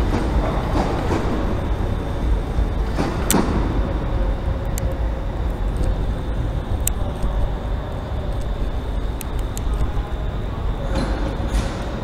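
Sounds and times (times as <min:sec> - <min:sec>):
electric train rumble: 0:00.0 - 0:12.0
faint whine: 0:00.0 - 0:12.0
sharp clicks: 0:09.2 - 0:09.9.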